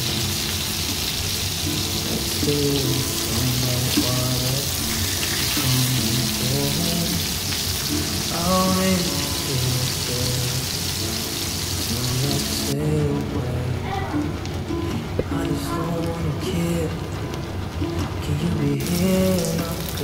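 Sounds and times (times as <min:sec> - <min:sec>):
fish sizzling in hot oil: 0:00.0 - 0:12.7, 0:18.8 - 0:20.0
background music: 0:00.0 - 0:20.0.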